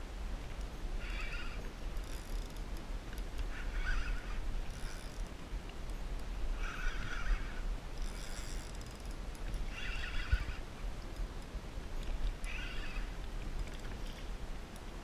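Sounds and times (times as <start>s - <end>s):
fishing reel drag buzzing: 0.7s - 5.3s, 6.6s - 11.3s, 12.3s - 14.3s.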